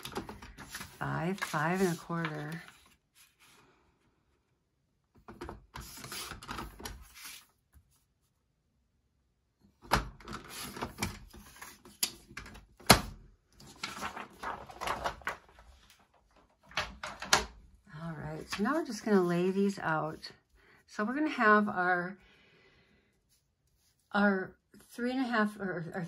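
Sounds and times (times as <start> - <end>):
paper rustling: 0.0 - 3.6, 5.8 - 7.5, 13.6 - 17.2.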